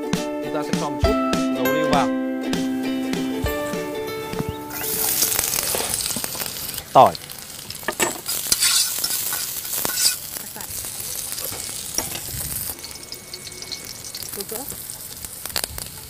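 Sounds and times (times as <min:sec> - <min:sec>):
food sizzling in oil: 0:02.8 - 0:16.0
utensil knocking and scraping pan: 0:07.9 - 0:10.2.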